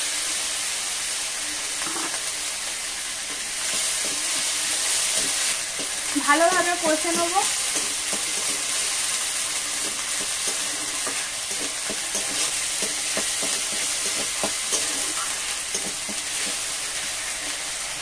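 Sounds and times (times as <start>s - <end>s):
spice paste sizzling in oil: 0.0s - 18.0s
metal spatula scraping pan: 1.8s - 2.2s, 9.7s - 16.6s.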